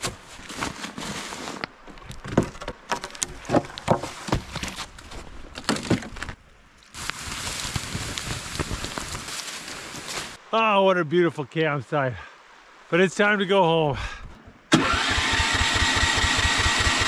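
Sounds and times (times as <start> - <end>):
wooden poles knocking: 1.9 - 4.9
steady rushing hiss: 6.7 - 14.0.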